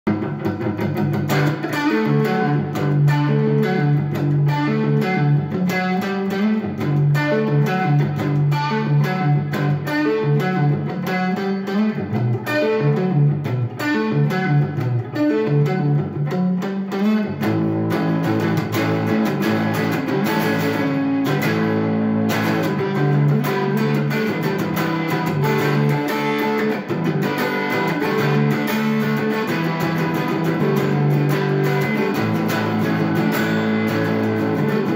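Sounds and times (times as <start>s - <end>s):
electric guitar riffs: 0.1s - 34.9s.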